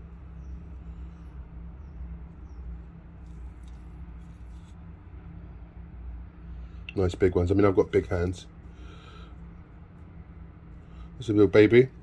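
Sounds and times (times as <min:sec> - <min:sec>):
gloved hands rustling compost: 0:00.0 - 0:05.2
low background hum: 0:00.0 - 0:12.0
soft scrapes: 0:03.2 - 0:05.0.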